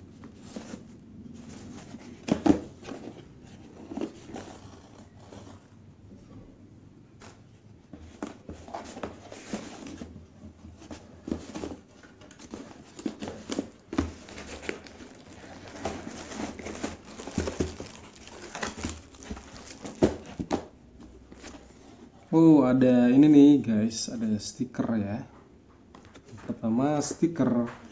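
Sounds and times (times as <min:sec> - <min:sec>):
paper and cardboard rustling: 0:00.1 - 0:05.7, 0:07.2 - 0:22.1
plastic package crackling: 0:14.5 - 0:20.2.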